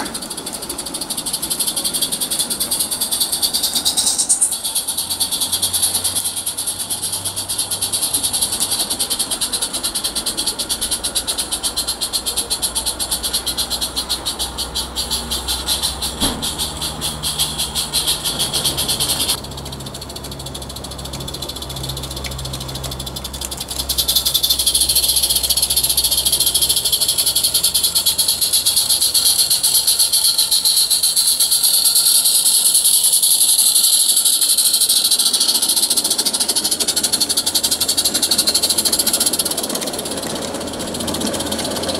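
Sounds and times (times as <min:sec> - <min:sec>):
steam locomotive chuffing: 0:00.0 - 0:41.9.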